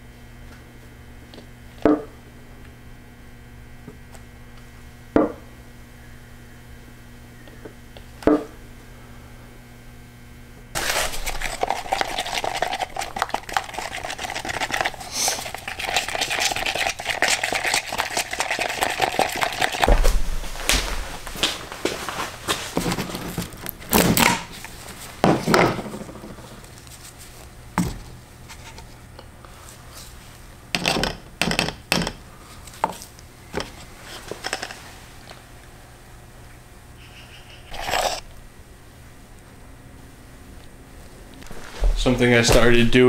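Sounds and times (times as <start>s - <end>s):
hand pump strokes: 10.8s - 19.9s, 37.6s - 38.2s
stick stirring epoxy in cup: 10.8s - 19.9s, 37.7s - 38.2s
low thump: 19.9s - 21.1s.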